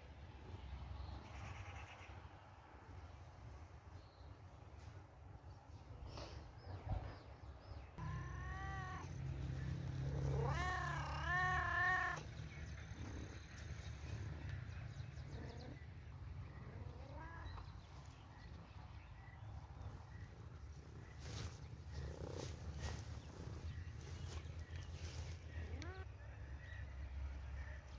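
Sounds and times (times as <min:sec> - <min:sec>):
cat meowing: 0:08.0 - 0:09.2, 0:10.1 - 0:12.3.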